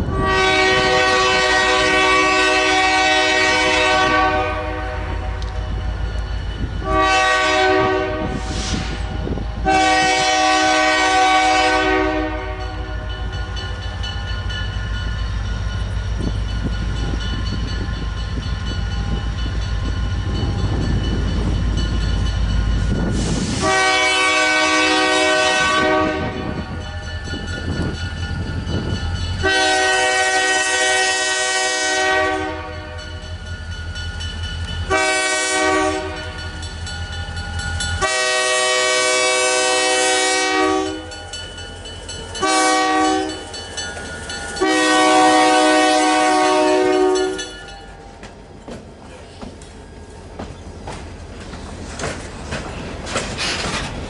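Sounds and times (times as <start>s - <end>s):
train air horn blasts: 0.0s - 5.5s, 6.8s - 13.0s, 23.0s - 26.8s, 29.4s - 33.2s, 34.9s - 36.5s, 38.0s - 41.2s, 42.4s - 43.5s, 44.6s - 47.5s
diesel locomotive engine rumble: 0.0s - 54.0s.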